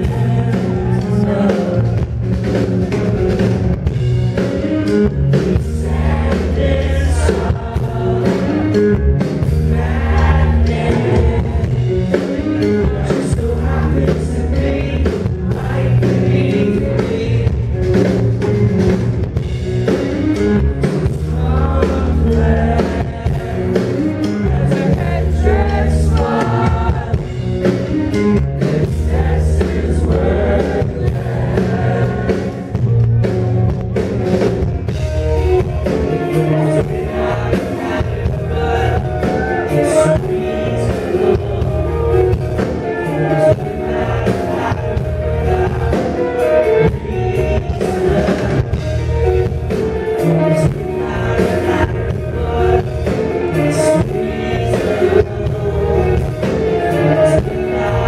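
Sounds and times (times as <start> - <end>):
rock band playing live: 0.0 - 58.0.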